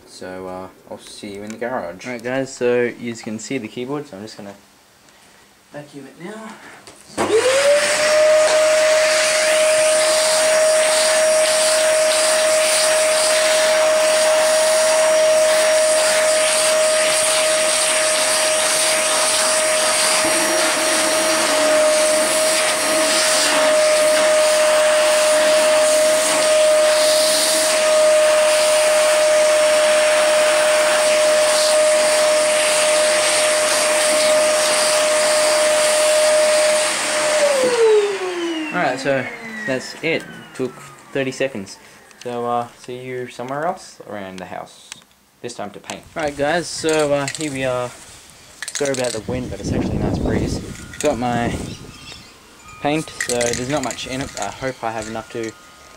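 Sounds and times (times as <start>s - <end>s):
vacuum cleaner running: 7.1s - 42.7s, 48.8s - 55.9s.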